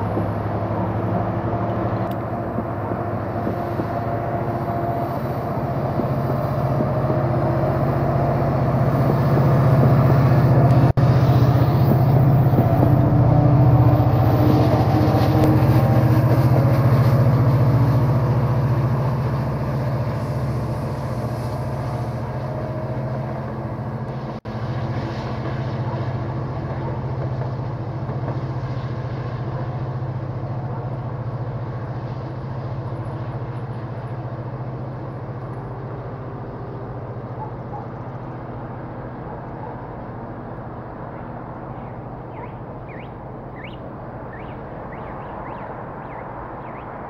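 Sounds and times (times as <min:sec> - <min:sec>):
diesel locomotive engine drone: 0:00.0 - 0:47.0.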